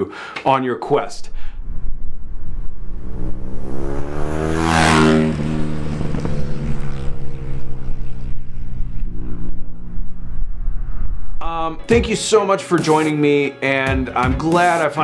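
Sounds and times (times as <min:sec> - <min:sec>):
motorcycle passing by: 0:01.6 - 0:11.4.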